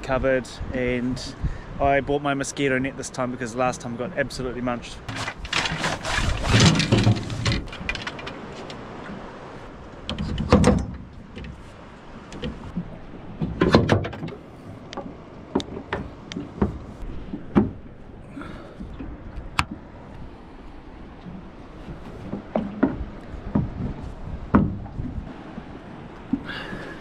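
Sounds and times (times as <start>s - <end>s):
canvas rustling and flapping: 5.1s - 8.7s.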